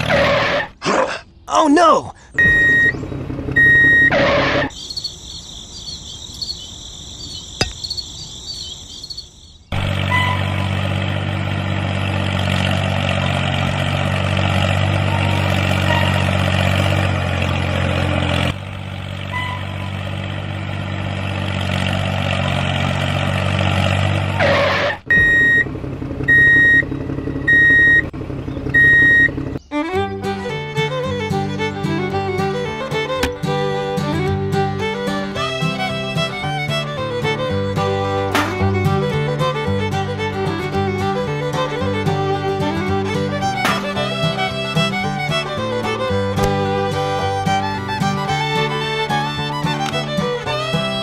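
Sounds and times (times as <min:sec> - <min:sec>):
tractor engine running: 0:02.3 - 0:51.0
short high beeps: 0:02.4 - 0:02.9.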